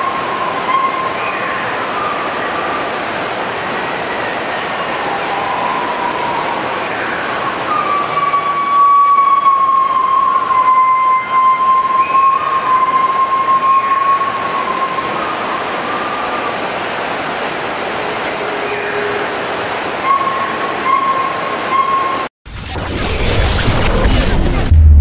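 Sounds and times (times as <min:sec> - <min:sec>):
dense hiss of rainforest: 0:00.0 - 0:21.7
high whistling tone: 0:04.8 - 0:16.6, 0:20.0 - 0:22.3.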